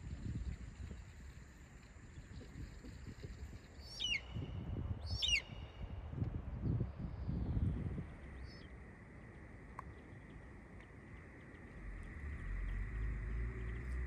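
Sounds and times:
wind on microphone: 0:00.0 - 0:08.8
bird calling: 0:03.8 - 0:04.4, 0:05.1 - 0:05.6.

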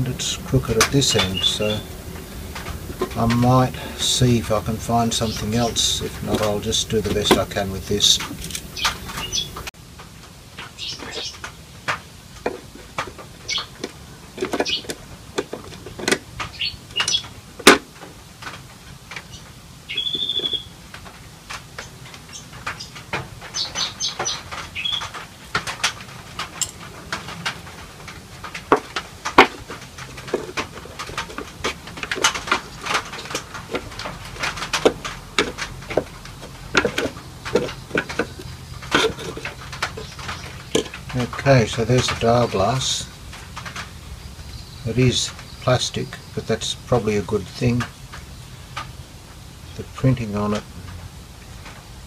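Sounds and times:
tools and parts clicking on workbench: 0:05.1 - 0:09.7, 0:11.0 - 0:19.2, 0:21.0 - 0:42.9.

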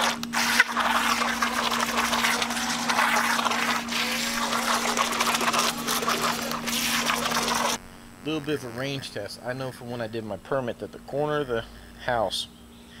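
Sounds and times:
small electric motor whirring: 0:00.0 - 0:07.8
water splashing: 0:00.0 - 0:07.8.

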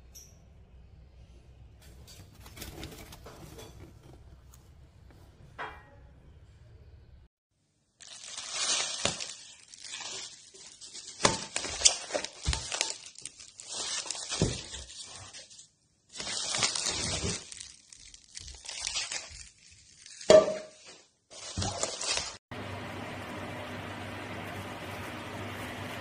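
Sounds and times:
bubble wrap crinkling: 0:08.0 - 0:22.4.

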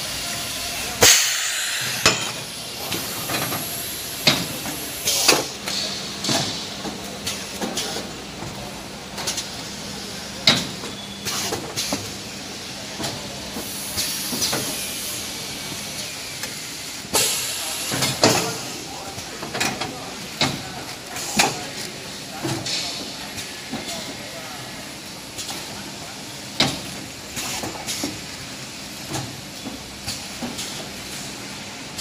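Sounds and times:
pneumatic cylinders clacking: 0:00.1 - 0:12.2, 0:12.8 - 0:32.0
short air hisses: 0:01.0 - 0:02.1.

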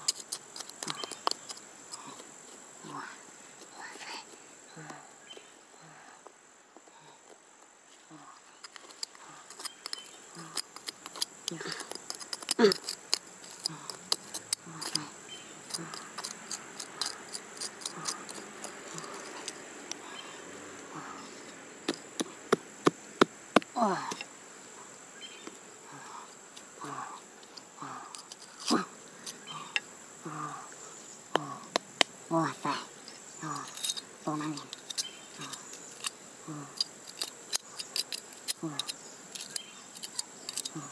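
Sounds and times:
trowel scraping dry soil: 0:00.0 - 0:02.7, 0:08.6 - 0:20.2, 0:27.4 - 0:29.8, 0:33.0 - 0:40.9
high insect hum: 0:00.0 - 0:40.9.

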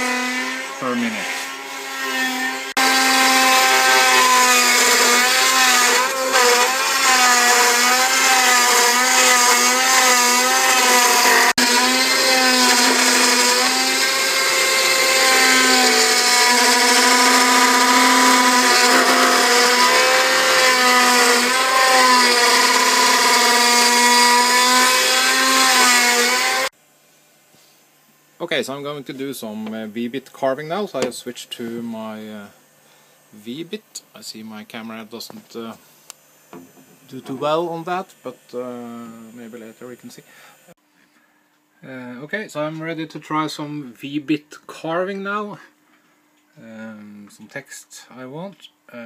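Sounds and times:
router bit cutting wood whine: 0:00.0 - 0:26.7.

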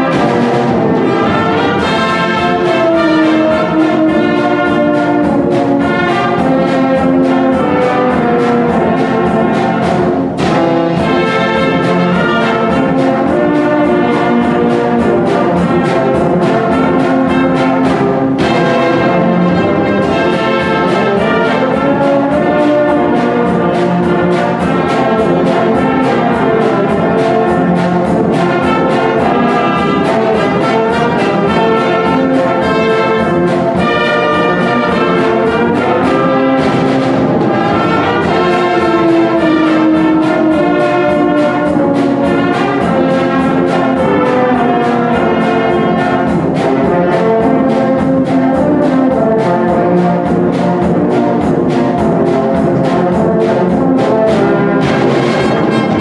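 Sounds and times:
wind band playing: 0:00.0 - 0:56.0.

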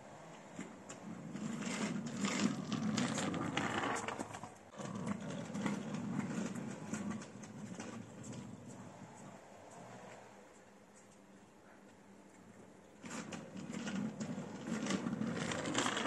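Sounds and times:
wheels clicking over tile joints: 0:00.1 - 0:16.0
kick scooter wheels rumbling on tiles: 0:00.3 - 0:09.9, 0:12.9 - 0:16.0.

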